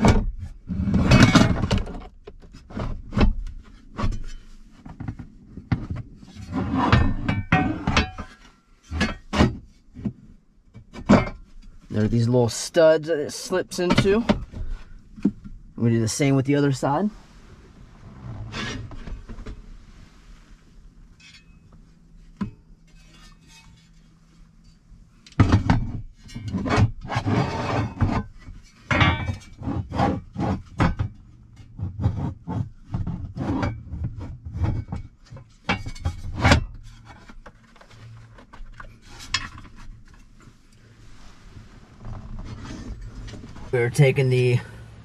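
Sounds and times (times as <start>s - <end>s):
metal panel scraping and knocking: 0.0s - 10.2s, 18.2s - 19.6s, 25.4s - 40.4s.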